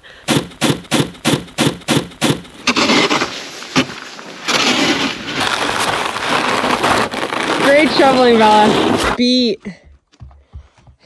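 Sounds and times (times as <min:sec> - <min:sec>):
crunching shovel strokes: 0:00.1 - 0:09.2
shovel scraping snow: 0:02.2 - 0:09.2.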